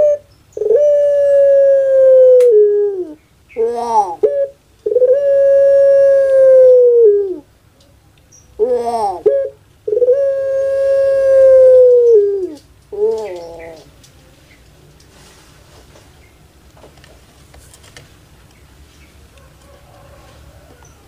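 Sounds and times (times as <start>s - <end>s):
dove calling: 0.0s - 7.5s, 8.4s - 14.6s.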